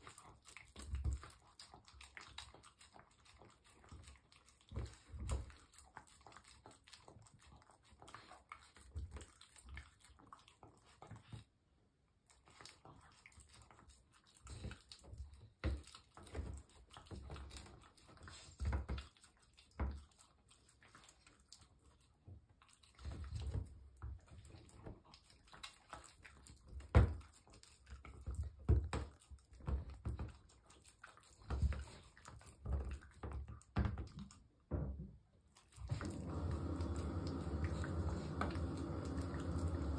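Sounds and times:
dog licking food: 0:00.0 - 0:11.6, 0:12.2 - 0:34.6, 0:35.4 - 0:39.9.

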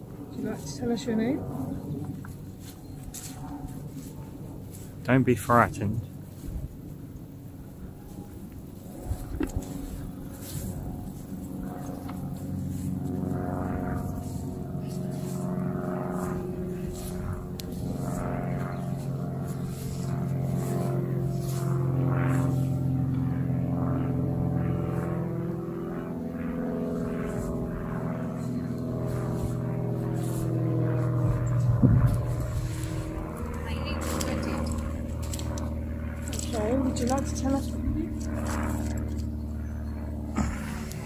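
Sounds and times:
engine drone: 0:00.0 - 0:41.0
faint brushing and rustling: 0:00.4 - 0:05.0, 0:07.9 - 0:23.1, 0:26.8 - 0:39.3.

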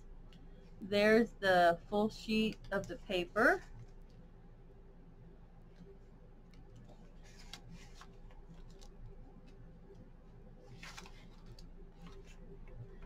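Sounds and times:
faint steady hum: 0:00.0 - 0:13.0
paper crinkles: 0:06.6 - 0:09.6, 0:10.6 - 0:12.8
paper pages rustling: 0:06.6 - 0:09.6, 0:10.6 - 0:12.8.

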